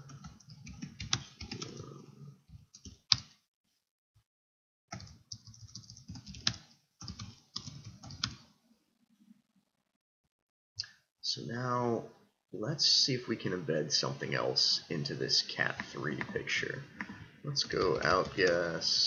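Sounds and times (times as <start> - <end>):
typing on keyboard: 0.0 - 1.9, 2.6 - 3.3, 4.9 - 8.4.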